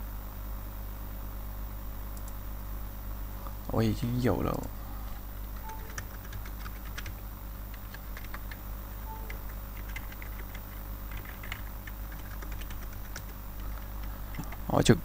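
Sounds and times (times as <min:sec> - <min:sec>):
low hum: 0:01.9 - 0:07.2, 0:07.9 - 0:15.0
keyboard keys clicking: 0:05.6 - 0:14.6.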